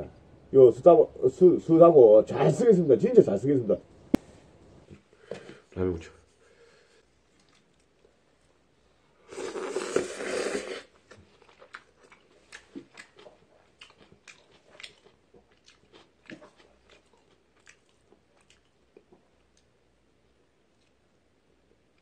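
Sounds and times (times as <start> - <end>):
chewing with mouth clicks: 7.4 - 8.1, 11.1 - 19.7
person slurping noodles: 9.2 - 11.0.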